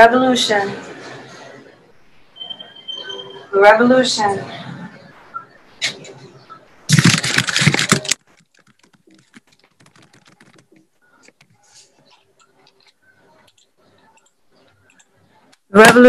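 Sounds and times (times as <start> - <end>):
loud rustling on microphone: 6.9 - 12.1.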